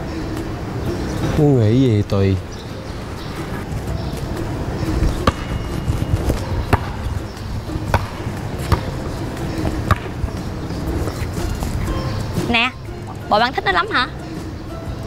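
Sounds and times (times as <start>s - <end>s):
basketball bouncing on pavement: 5.0s - 12.5s.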